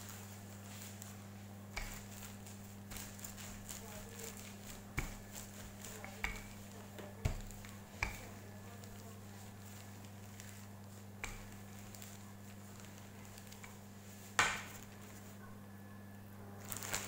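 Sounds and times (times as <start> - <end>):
steady low hum: 0.0 - 17.0
rolling pin knocking on board: 2.9 - 8.4.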